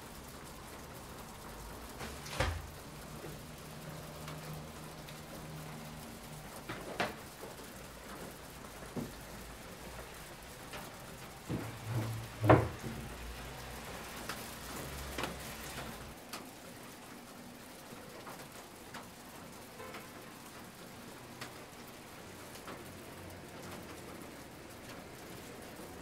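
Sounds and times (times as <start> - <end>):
rain pattering: 0.0 - 26.0
thump: 2.3 - 2.7, 11.5 - 13.0.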